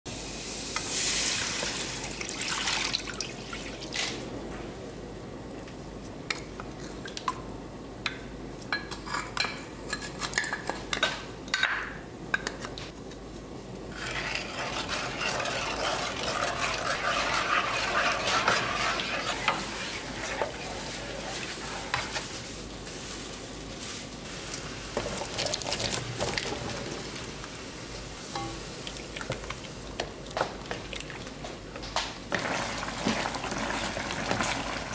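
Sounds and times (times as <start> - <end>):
wooden spoon scraping a wok: 13.9 - 23.2.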